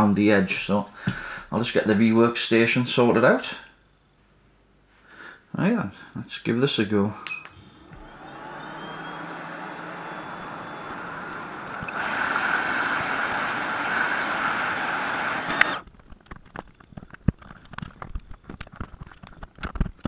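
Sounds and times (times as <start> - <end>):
hot air blower rushing: 7.6 - 15.8.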